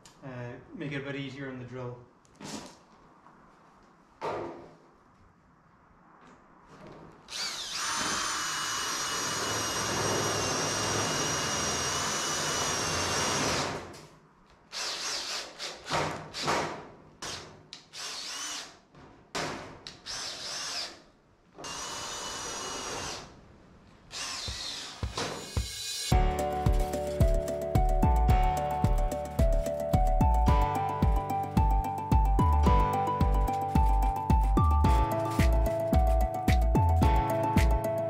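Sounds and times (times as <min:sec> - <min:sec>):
cordless drill driving screws into steel: 0:07.3 - 0:14.0, 0:14.7 - 0:18.8, 0:19.9 - 0:23.3, 0:24.1 - 0:26.1.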